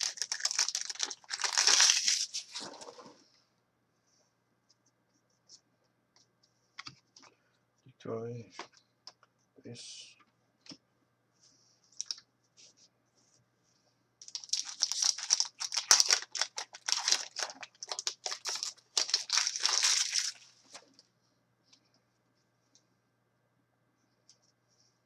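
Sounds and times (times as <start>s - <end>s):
foil wrapper crinkling and tearing: 0.0s - 2.9s, 14.2s - 20.5s.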